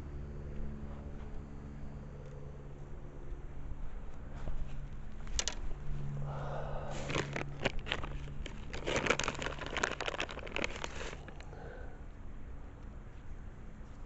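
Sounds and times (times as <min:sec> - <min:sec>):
plastic bags crinkling: 0:05.3 - 0:05.6, 0:06.3 - 0:11.6.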